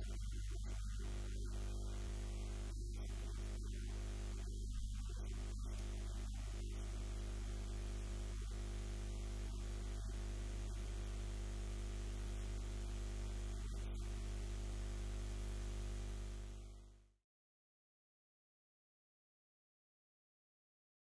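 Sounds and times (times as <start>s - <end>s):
even hiss: 0.0s - 14.2s
electrical mains hum: 0.0s - 17.2s.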